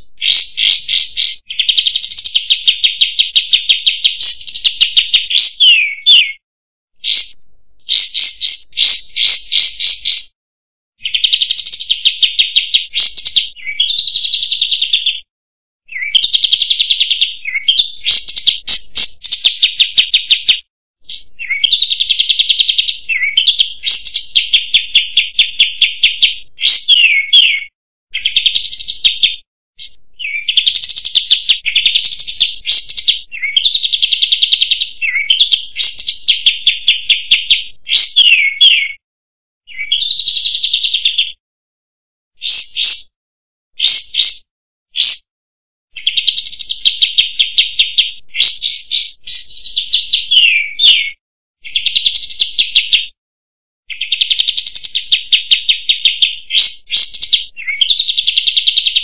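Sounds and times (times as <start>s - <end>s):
bulbul singing trills: 0.0s - 6.4s, 7.0s - 10.4s, 11.0s - 15.3s, 15.9s - 39.0s, 39.7s - 41.4s, 45.9s - 53.1s, 53.9s - 59.0s.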